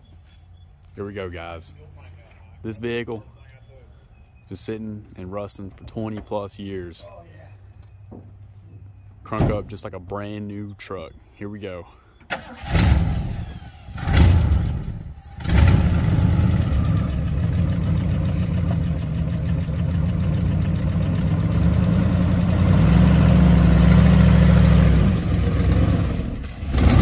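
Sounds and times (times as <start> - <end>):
pickup truck engine revving: 12.5 - 27.0.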